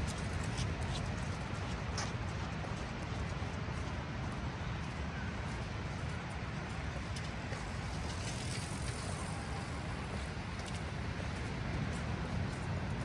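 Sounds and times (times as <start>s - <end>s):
road traffic: 6.2s - 13.0s.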